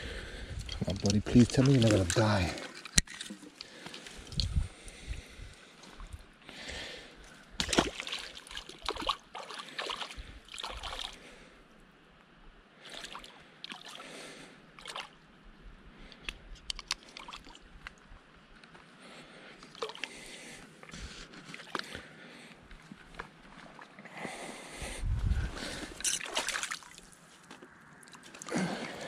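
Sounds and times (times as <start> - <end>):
shallow water splashing: 0.9 - 4.4, 7.6 - 11.4, 25.6 - 27.2.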